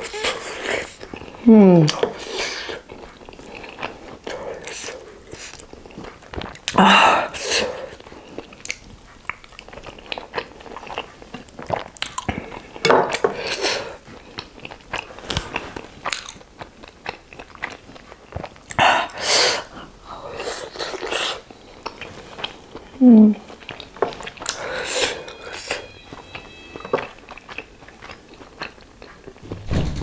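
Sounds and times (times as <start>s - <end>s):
close chewing and biting: 0.0s - 29.4s
loud breathing: 24.5s - 25.7s.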